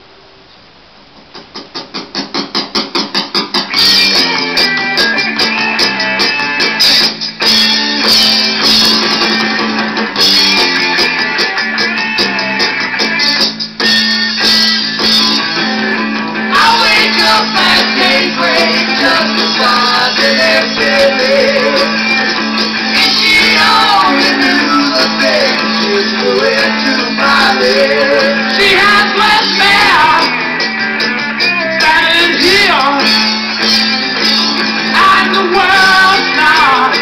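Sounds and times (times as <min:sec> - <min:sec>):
rock guitar: 0:01.3 - 0:37.0
person singing: 0:16.5 - 0:22.2, 0:22.9 - 0:30.4, 0:31.8 - 0:33.1, 0:34.8 - 0:37.0.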